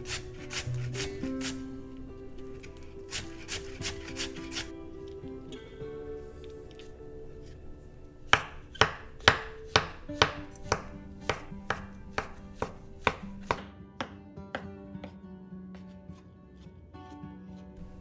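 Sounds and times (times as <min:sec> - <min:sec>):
background music: 0:00.0 - 0:18.0
knife chopping on cutting board: 0:08.3 - 0:14.7.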